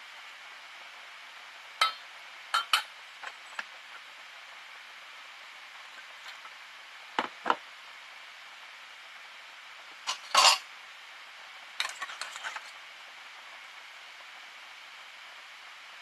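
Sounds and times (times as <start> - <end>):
spoon clatter in steel bowls: 2.6 - 2.9, 10.1 - 10.7, 11.8 - 12.7
metal spoon scraping tin: 10.1 - 10.6.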